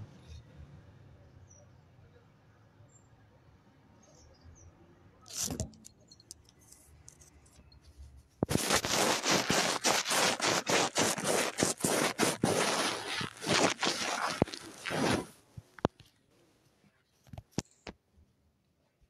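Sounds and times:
microphone rubbing on fabric: 7.9 - 15.7.

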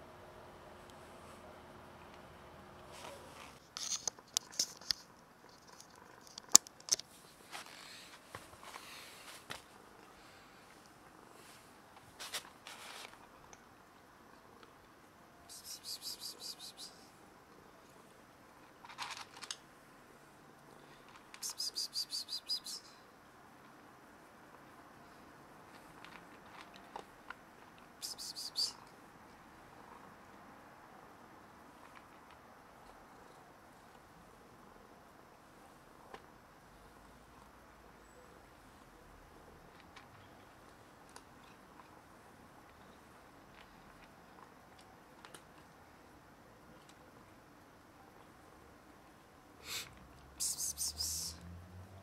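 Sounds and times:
cat crunching dry kibble: 3.7 - 7.1, 18.6 - 19.6, 25.7 - 27.9
cricket chirping: 15.5 - 17.1, 21.4 - 22.9, 28.0 - 28.8.

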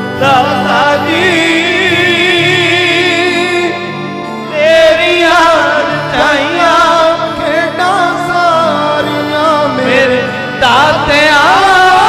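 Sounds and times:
person singing devotional song: 0.0 - 12.0.

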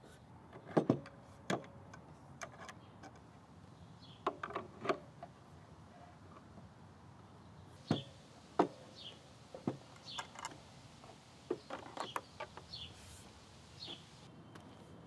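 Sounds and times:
bird chirping: 3.7 - 4.4, 7.3 - 14.6.

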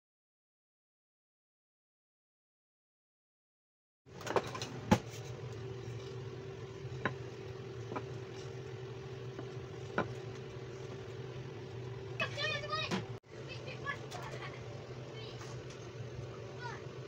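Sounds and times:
steady low hum: 4.1 - 17.0
rolling pin knocking on countertop: 9.4 - 10.2.

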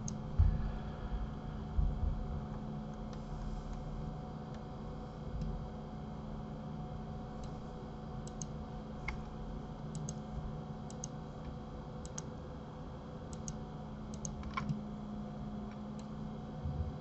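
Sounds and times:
low electrical hum: 0.0 - 17.0
computer mouse clicking: 7.4 - 7.6, 8.2 - 9.3, 9.9 - 10.2, 10.9 - 11.2, 12.0 - 12.3, 13.3 - 14.8.

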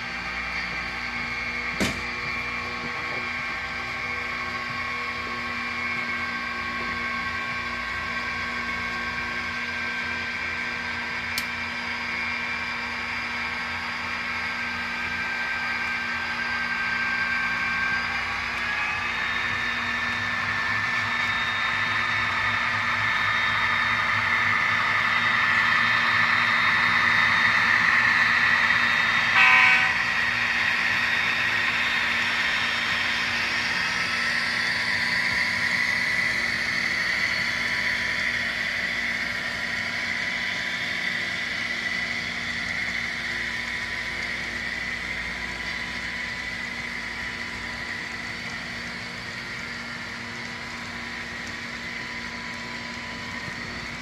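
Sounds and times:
model train rolling on track: 0.0 - 54.0
train horn blast: 29.2 - 30.6.

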